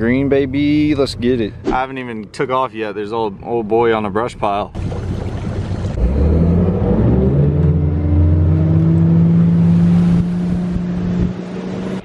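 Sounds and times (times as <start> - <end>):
outboard motor throttling up: 4.7 - 6.9.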